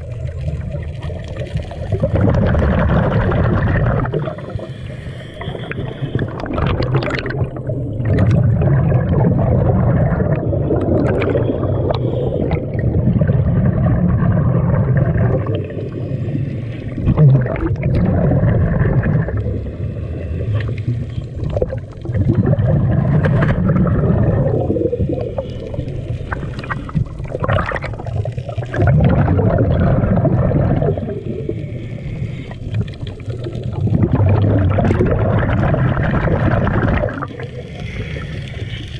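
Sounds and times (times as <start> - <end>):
exhaled bubbles rumbling: 0.0 - 38.9
regulator inhalations: 4.4 - 6.5.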